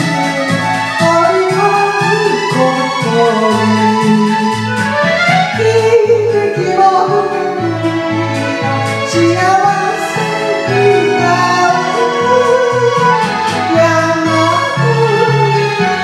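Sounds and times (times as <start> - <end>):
karaoke backing track: 0.0 - 16.0
woman singing: 0.0 - 16.0.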